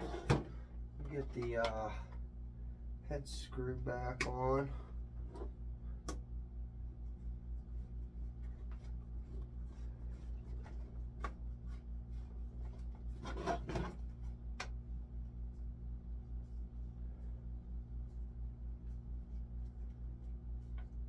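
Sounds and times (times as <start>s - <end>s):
metal scrape: 0.0s - 0.4s
pulsing low hum: 1.9s - 3.9s, 14.0s - 21.0s.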